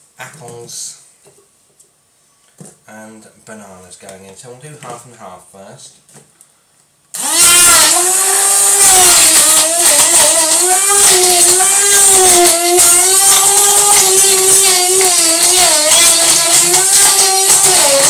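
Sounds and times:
stick blender motor whine: 7.2s - 18.0s.

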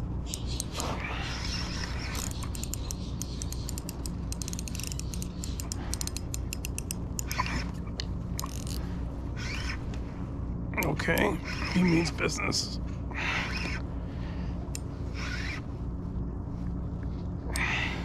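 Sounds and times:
fishing reel clicking: 2.0s - 7.4s, 8.4s - 8.8s.

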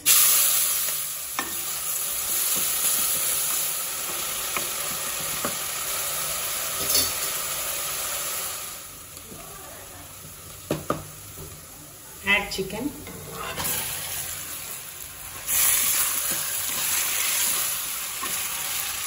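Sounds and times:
onions sizzling in oil: 0.0s - 19.0s
wooden spatula tapping and scraping pot: 4.0s - 5.6s, 10.2s - 11.6s, 15.8s - 18.6s.

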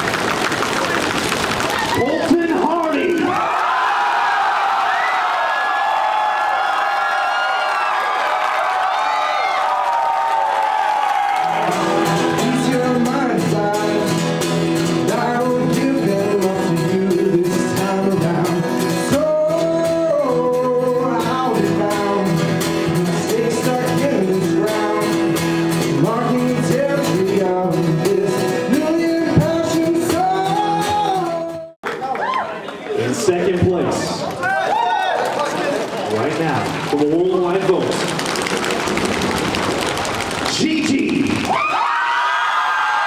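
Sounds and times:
acoustic guitar strumming: 11.4s - 31.7s
man singing: 11.6s - 31.8s.

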